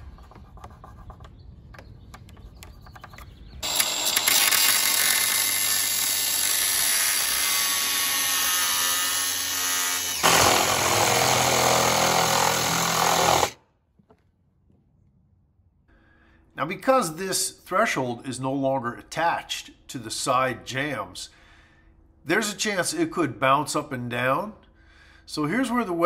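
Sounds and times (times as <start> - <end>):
angle grinder cutting metal: 3.6 - 13.6
power saw cutting metal: 3.6 - 13.6.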